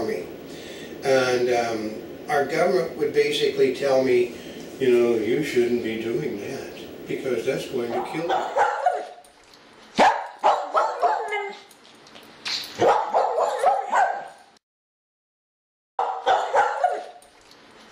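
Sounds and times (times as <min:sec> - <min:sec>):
dog barking and yelping: 0:07.9 - 0:09.2, 0:09.9 - 0:11.7, 0:12.7 - 0:14.4, 0:16.0 - 0:17.2.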